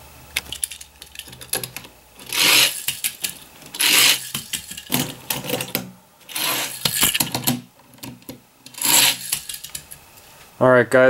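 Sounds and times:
toy cars rattling down plastic track: 0.4s - 7.6s, 8.7s - 10.0s.

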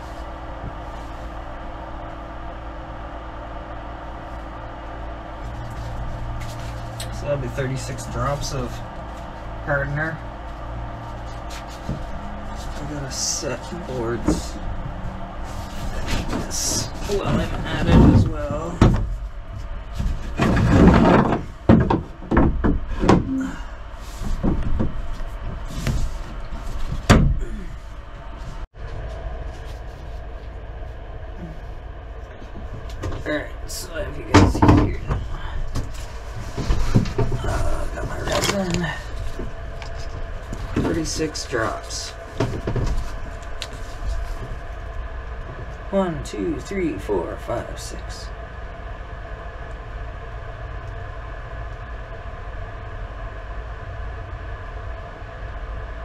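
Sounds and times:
scraping rustle: 0.0s - 2.6s, 3.8s - 22.3s, 23.9s - 45.9s
low machine hum: 0.0s - 56.0s
knocks and bumps in boat cabin: 14.0s - 23.4s, 24.2s - 27.5s, 34.2s - 38.3s, 40.6s - 43.4s.

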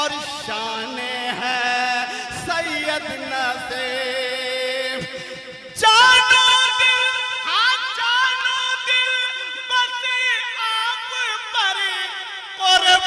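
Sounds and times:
man singing devotional song: 0.0s - 13.0s.

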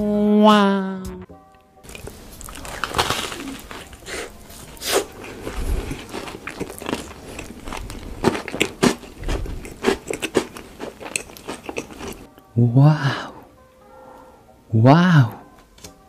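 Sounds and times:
crunchy chewing: 1.9s - 12.3s.

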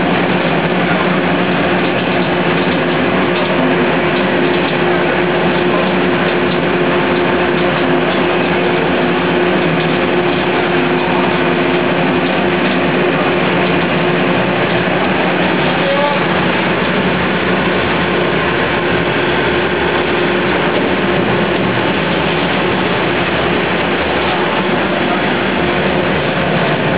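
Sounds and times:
factory machinery din: 0.0s - 26.9s
steady motor hum: 0.0s - 26.9s.

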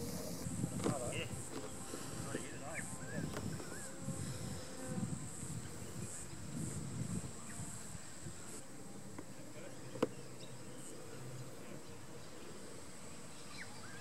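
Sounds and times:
high-pitched insect buzzing: 0.0s - 8.6s.

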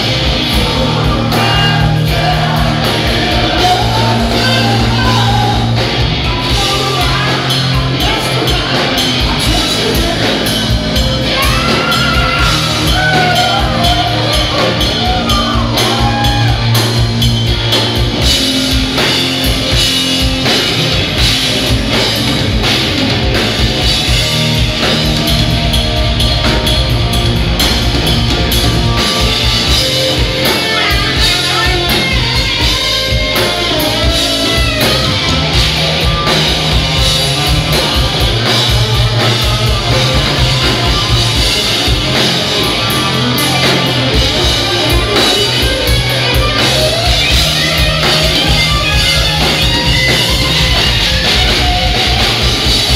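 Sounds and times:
rock band playing live: 0.0s - 52.9s
man singing lead vocal: 0.1s - 16.8s, 29.7s - 35.1s.

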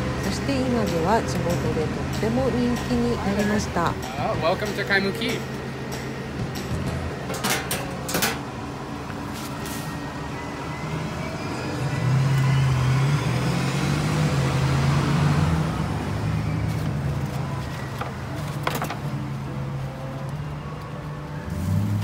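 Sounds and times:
traffic noise: 0.0s - 22.0s
vehicle driving past: 9.6s - 18.4s.

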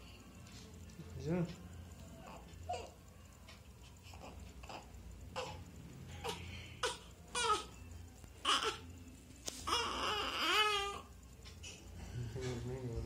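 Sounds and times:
newborn baby crying: 2.3s - 3.0s, 4.0s - 5.6s, 6.2s - 7.8s, 8.4s - 8.9s, 9.6s - 11.1s.

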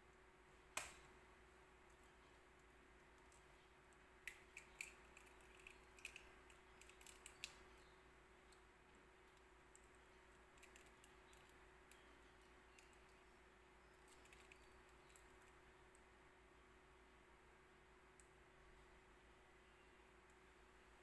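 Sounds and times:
faint steady hum: 0.0s - 21.0s
eggshell cracking: 4.2s - 7.7s, 10.5s - 13.2s, 13.9s - 15.4s.

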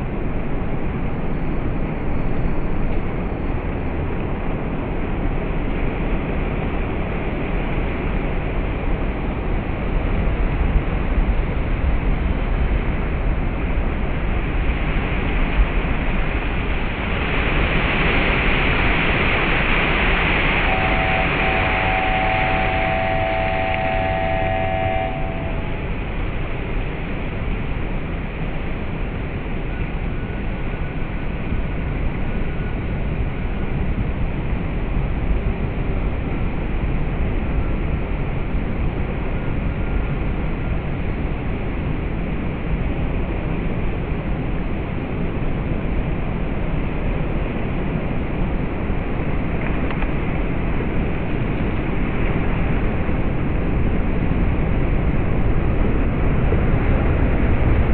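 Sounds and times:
faint high tone: 20.4s - 26.0s.

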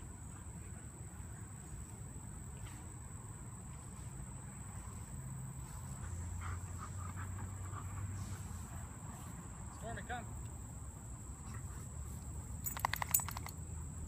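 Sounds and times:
insects droning: 0.0s - 14.0s
dogs playing: 2.5s - 9.8s, 11.3s - 13.6s.

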